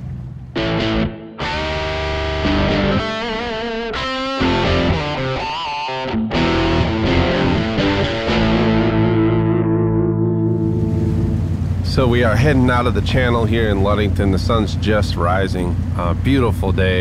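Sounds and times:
distorted electric guitar music: 0.6s - 11.6s.

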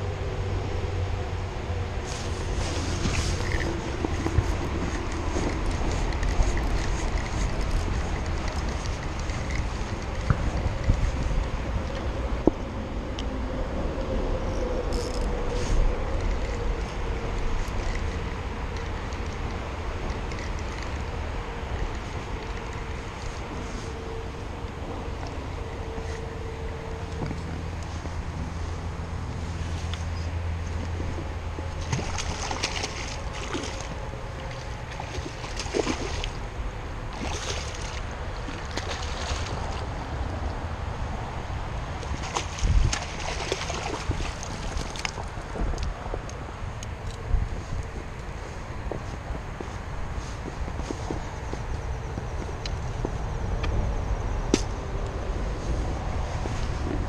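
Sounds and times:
wind rumble on microphone: 0.0s - 57.0s
fish splashing in water: 31.8s - 36.5s, 37.1s - 40.1s, 41.9s - 45.2s.

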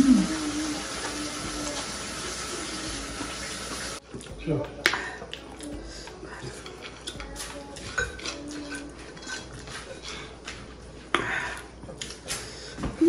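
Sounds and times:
fingers scraping ceramic plates: 6.4s - 10.7s.

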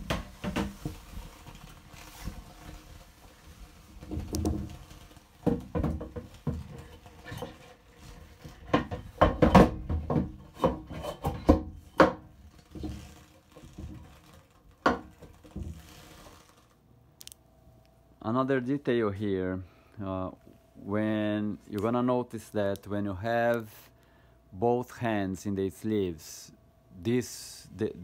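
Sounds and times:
plastic covers knocking and rubbing: 0.0s - 16.7s.

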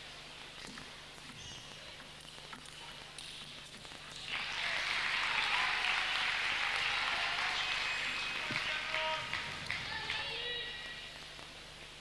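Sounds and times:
crowd applauding: 4.2s - 10.5s.

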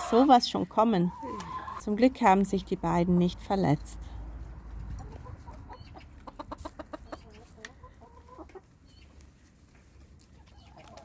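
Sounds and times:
chickens clucking: 0.0s - 2.4s, 4.7s - 11.0s.

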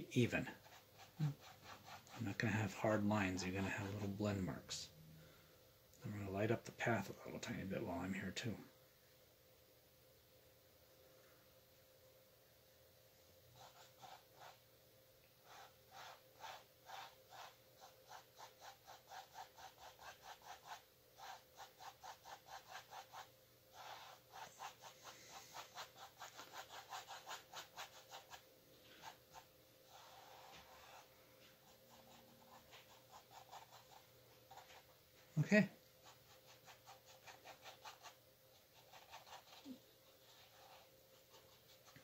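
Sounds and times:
paintbrush scrubbing on canvas: 0.2s - 4.4s, 13.6s - 14.6s, 15.4s - 42.0s.

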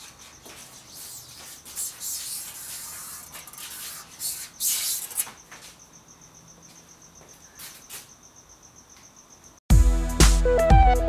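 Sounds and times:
short scraping strokes: 0.6s - 5.4s.

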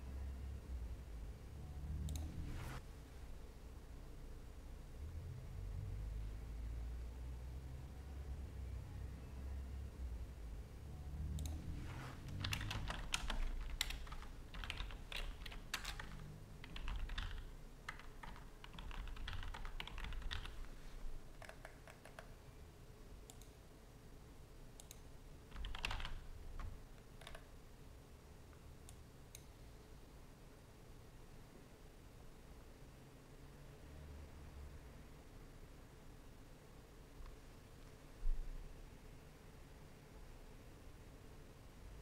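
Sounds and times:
typing on computer keyboard: 12.3s - 20.7s, 21.3s - 22.4s, 24.8s - 27.5s.

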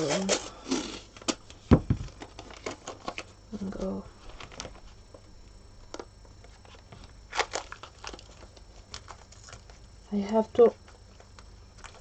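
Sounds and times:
tape ripping and crinkling: 7.3s - 9.8s.

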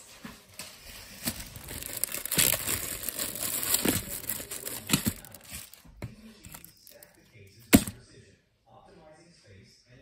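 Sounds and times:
plastic candy wrappers crinkling: 0.8s - 5.8s, 6.4s - 7.2s.

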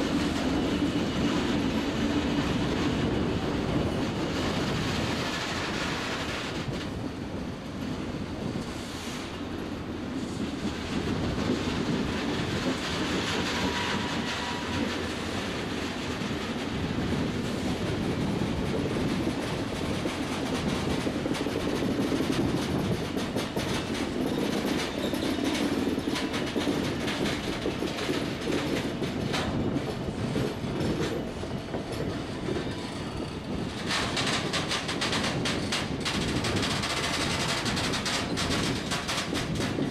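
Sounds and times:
train wheels rumbling: 0.0s - 39.9s
wheels clacking over rail joints: 10.6s - 39.9s.

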